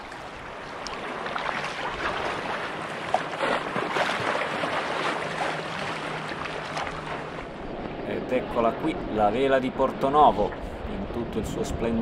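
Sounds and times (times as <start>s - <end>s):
water splashing around paddle: 0.0s - 8.0s.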